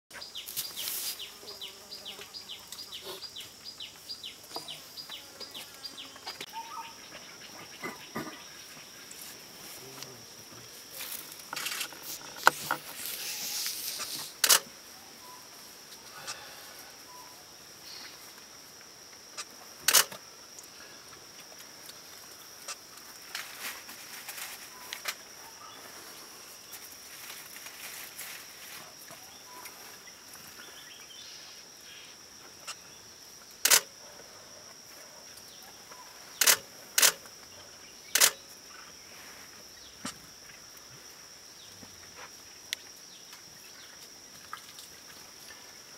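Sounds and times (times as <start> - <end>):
rustling hiss: 0.3 - 6.5, 8.2 - 33.9, 38.1 - 45.9
high-pitched insect drone: 11.0 - 15.5
camera shutter clicks: 14.4 - 14.7, 19.9 - 20.2, 33.6 - 33.9, 36.4 - 37.2, 38.2 - 38.4.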